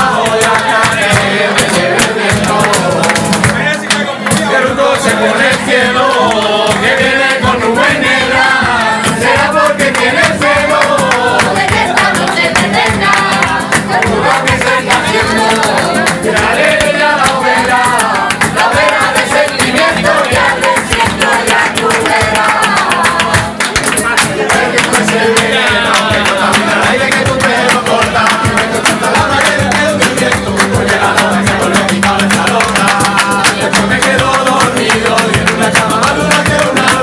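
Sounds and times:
group singing: 0.0 - 37.0
strummed classical guitars: 0.0 - 37.0.

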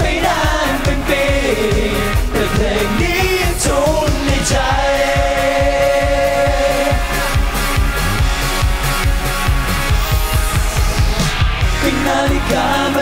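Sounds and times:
pop singing over a band: 0.0 - 7.8, 11.7 - 13.0.

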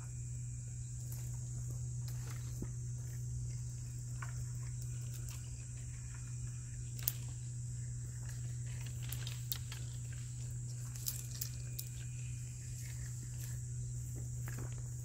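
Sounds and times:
crickets chirring: 0.0 - 15.0
low hum: 0.0 - 15.0.

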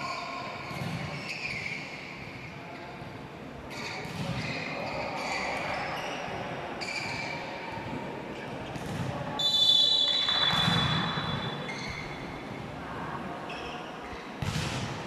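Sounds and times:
crowd noise: 0.0 - 15.0
referee's whistle: 9.4 - 11.9.

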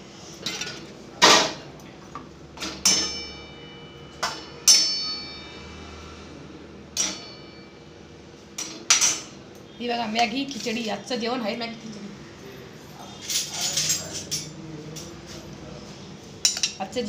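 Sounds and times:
metal utensils clinking: 0.4 - 1.6, 2.6 - 3.6, 7.0 - 7.6, 8.6 - 9.4, 13.0 - 15.3, 16.4 - 17.0.

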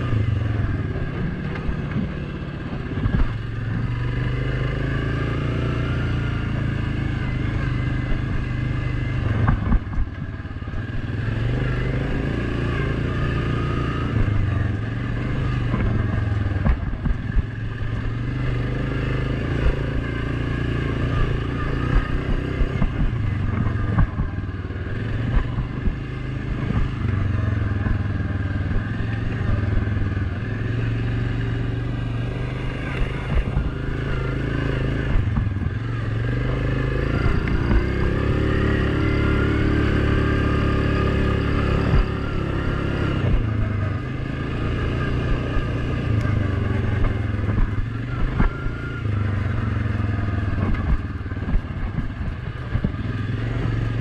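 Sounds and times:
off-road vehicle engine running: 0.0 - 54.0.

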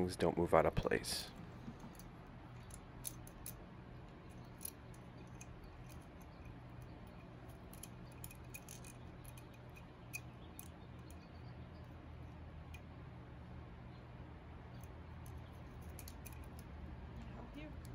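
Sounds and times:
low steady hum: 0.0 - 17.9
hand tool clicks and metal taps: 4.3 - 11.2, 14.8 - 16.7.

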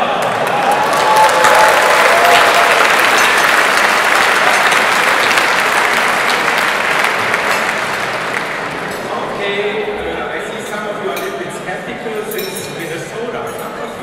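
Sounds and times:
audience applause: 0.0 - 9.1.

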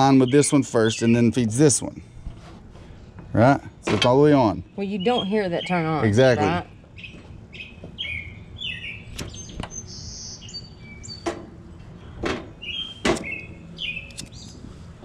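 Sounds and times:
birds chirping: 0.0 - 2.1, 3.0 - 15.0.

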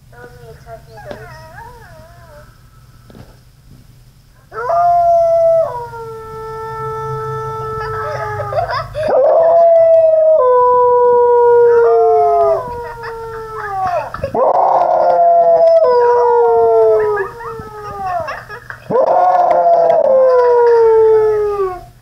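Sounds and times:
dog howling: 4.5 - 21.9.

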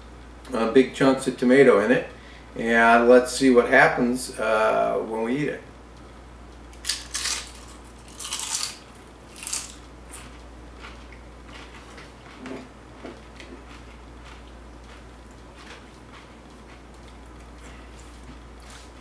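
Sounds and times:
crunching tortilla chip: 6.7 - 11.8
soft chewing: 9.4 - 19.0.

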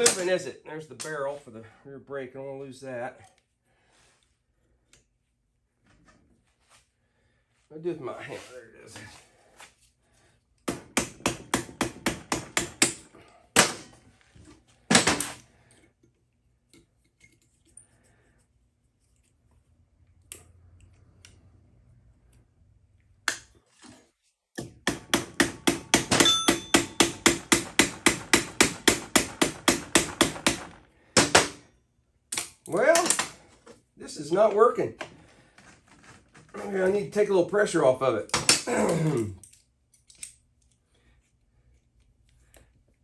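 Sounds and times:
hammer striking metal axle: 24.6 - 31.6.

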